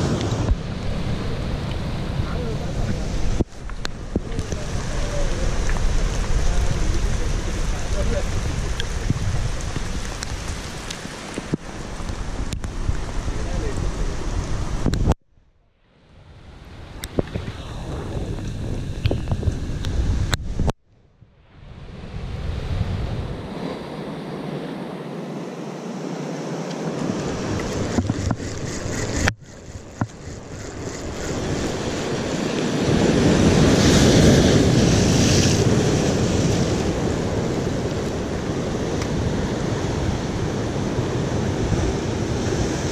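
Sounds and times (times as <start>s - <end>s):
waves breaking on rocky shore: 0.0s - 14.9s, 26.8s - 42.9s
wind buffeting microphone: 0.0s - 15.2s, 16.2s - 20.8s, 21.6s - 24.6s, 27.0s - 42.9s.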